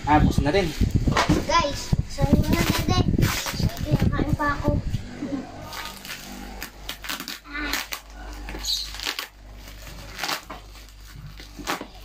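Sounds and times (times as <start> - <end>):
plastic crinkling: 5.6 - 12.0.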